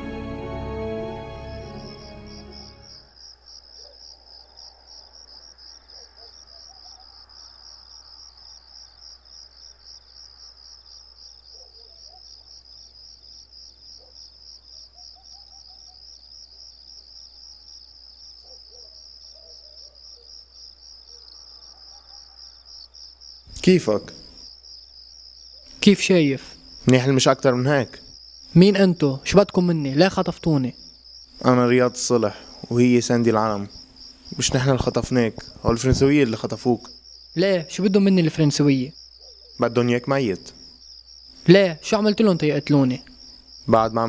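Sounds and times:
music cue: 0.0s - 3.1s
crickets trilling: 0.8s - 44.0s.

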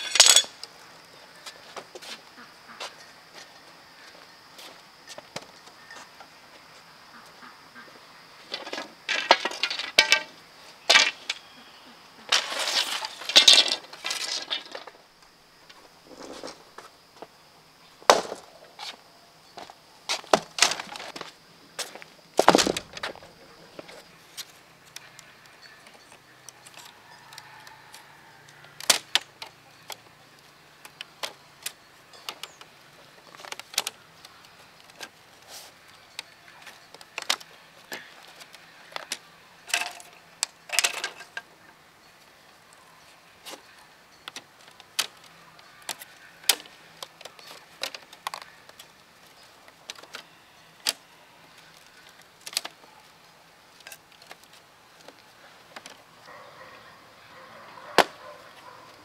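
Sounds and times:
loud bamboo clacks: 0.0s - 0.6s, 8.5s - 11.5s, 12.3s - 15.0s
bamboo strips clicking and clattering: 0.0s - 0.8s, 8.5s - 11.5s, 12.3s - 16.6s, 20.1s - 21.4s, 22.4s - 41.8s, 43.4s - 56.4s.

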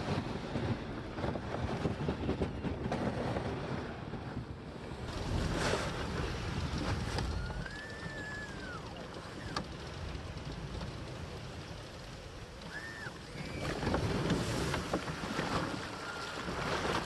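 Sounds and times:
wind on microphone: 0.0s - 12.0s, 12.6s - 17.0s
tracked vehicle rumbling: 0.0s - 16.0s
water splashing: 5.0s - 17.0s
rising-and-falling whistle: 7.2s - 9.6s, 12.6s - 13.9s.

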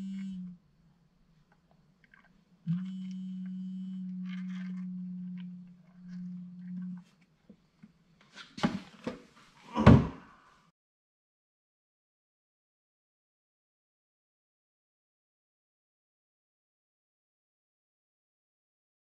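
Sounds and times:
steady low hum: 0.0s - 1.9s, 2.5s - 7.3s.

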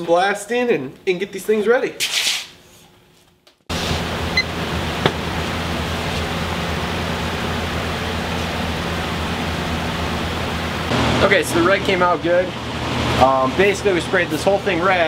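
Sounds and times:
oven rushing noise with low hum: 3.7s - 15.0s.

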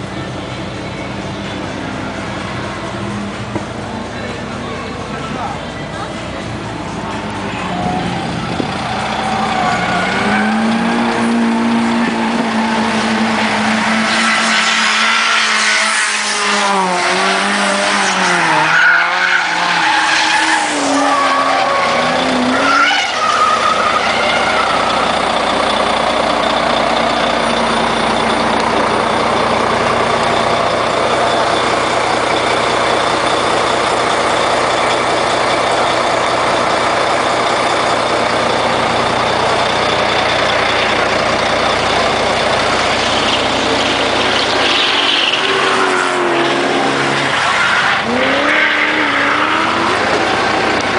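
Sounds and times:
car engines revving: 0.0s - 50.9s
tyre squeal: 18.0s - 28.6s, 42.6s - 50.3s.

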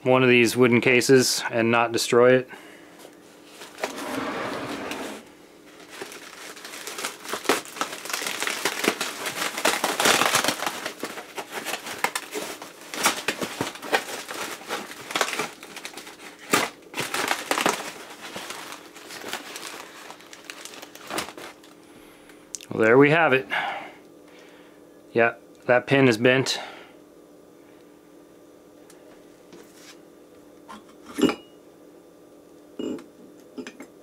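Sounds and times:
foam sheet crinkling: 5.6s - 21.8s.

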